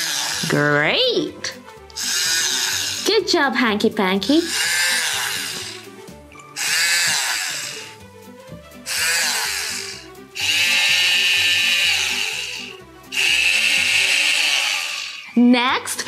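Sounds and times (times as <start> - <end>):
toy drill whirring: 0.0 - 0.7, 1.9 - 3.2, 4.4 - 8.0, 8.8 - 15.4
light background music: 0.0 - 16.0.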